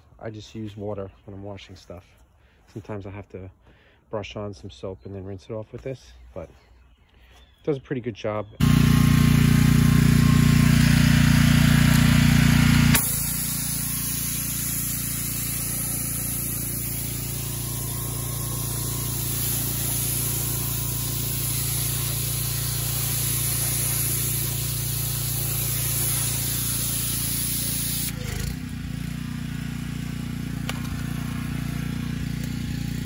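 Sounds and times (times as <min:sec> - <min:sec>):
pressure washer engine hum: 0:08.6 - 0:33.0
water spray hissing: 0:08.7 - 0:28.4.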